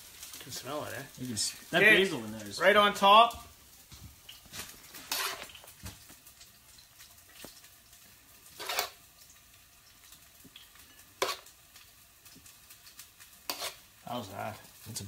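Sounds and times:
faint sizzle: 0:00.0 - 0:15.0
utensil scraping a pan: 0:04.7 - 0:05.7, 0:08.5 - 0:09.0, 0:10.9 - 0:11.5, 0:12.9 - 0:13.9.

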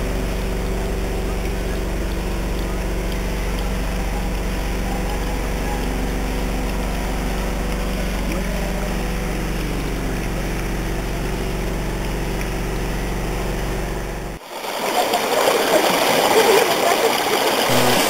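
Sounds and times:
low engine-like hum: 0:00.0 - 0:18.0.

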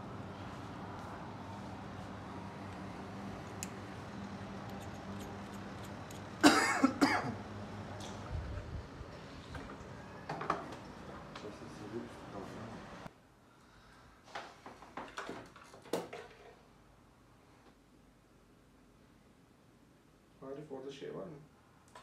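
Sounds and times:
steady background noise: 0:00.0 - 0:14.2
person coughing: 0:06.4 - 0:07.4.

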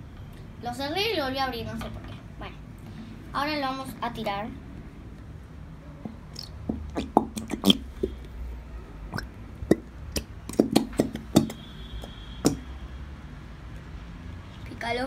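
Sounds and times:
glue squeezing pops and sputters: 0:06.0 - 0:08.4, 0:09.1 - 0:12.7.

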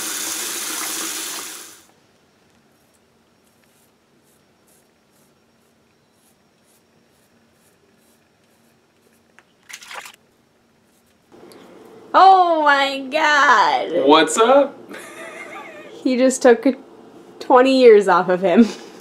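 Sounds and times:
razor scraping stubble: 0:02.8 - 0:09.3.

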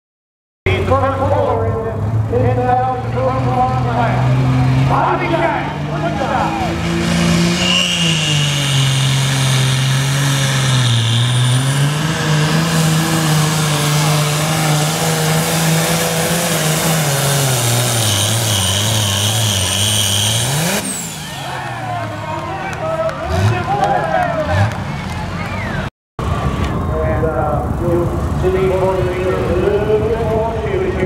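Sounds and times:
tractor diesel engine at full throttle: 0:00.7 - 0:31.0
high whine: 0:05.4 - 0:15.0.

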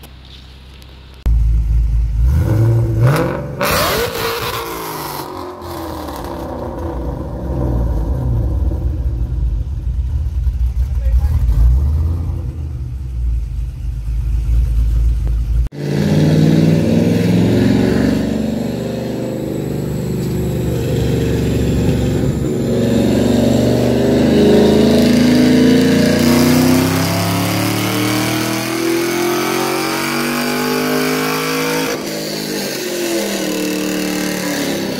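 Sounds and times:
sports car engine revving: 0:01.3 - 0:34.9
engine rumbling at idle: 0:09.0 - 0:15.7.

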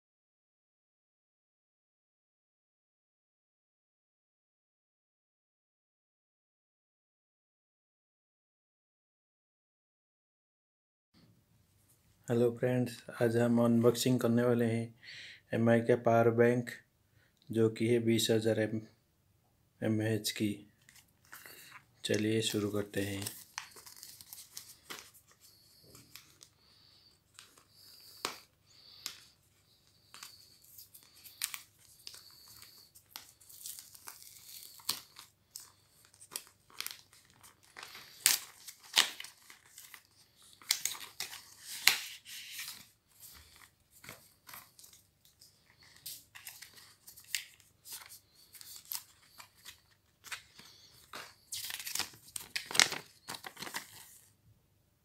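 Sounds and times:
paper leaflets rustling: 0:20.8 - 0:54.3.

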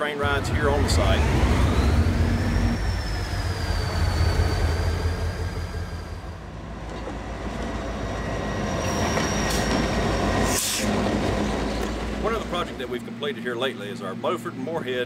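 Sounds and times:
diesel locomotive engine rumble: 0:00.0 - 0:15.0
rail noise: 0:00.0 - 0:15.0
turbocharger whine: 0:00.0 - 0:15.0
wheel squeal: 0:00.3 - 0:06.4, 0:08.0 - 0:12.0.

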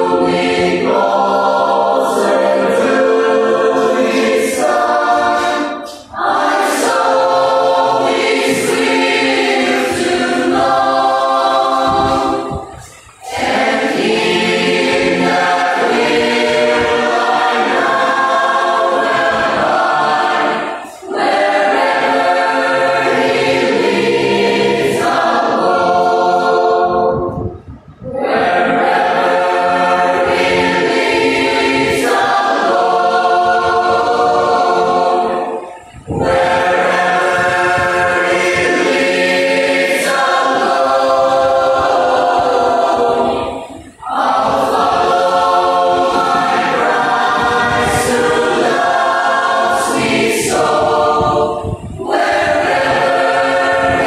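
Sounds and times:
mixed choir singing: 0:00.0 - 0:54.0.

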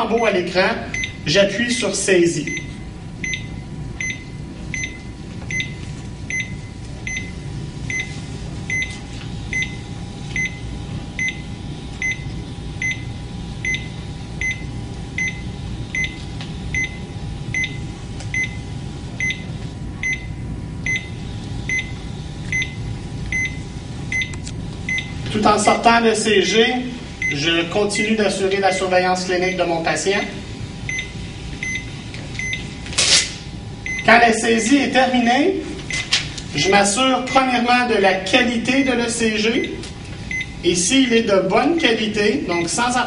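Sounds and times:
hum of the unit: 0:00.0 - 0:43.0
short high monitor beeps: 0:00.9 - 0:01.2, 0:02.4 - 0:09.8, 0:19.2 - 0:25.2, 0:30.9 - 0:32.7.

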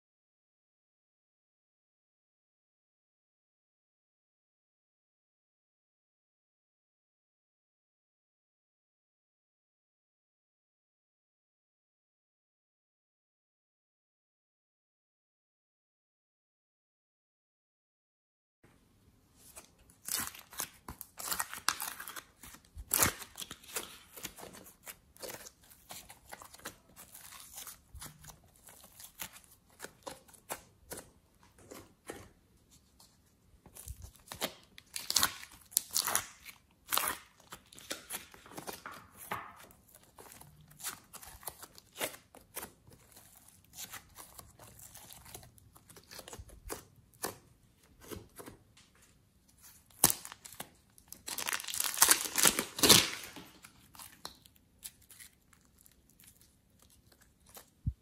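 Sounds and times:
hands squeezing sticky clay: 0:19.4 - 0:48.8, 0:49.5 - 0:58.0.

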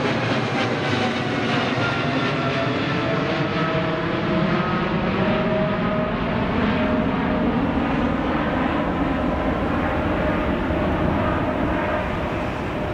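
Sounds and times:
faint jet whine: 0:00.0 - 0:12.9
jet engine rumble: 0:00.0 - 0:12.9.

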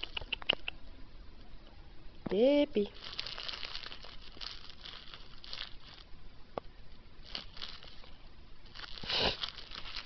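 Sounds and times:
rustling and crinkling: 0:02.3 - 0:10.0.

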